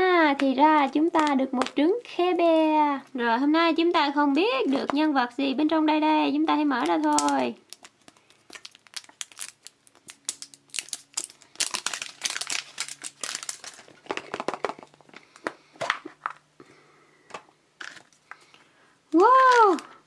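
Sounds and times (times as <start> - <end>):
plastic wrap crinkling: 6.6 - 16.4, 17.8 - 20.0.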